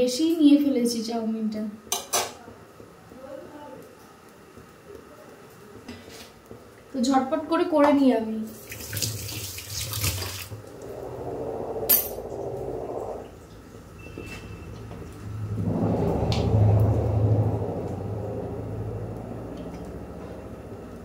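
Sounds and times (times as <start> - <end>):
kitchen tap running: 8.5 - 10.9
steady low hum: 10.4 - 14.0, 14.7 - 21.0.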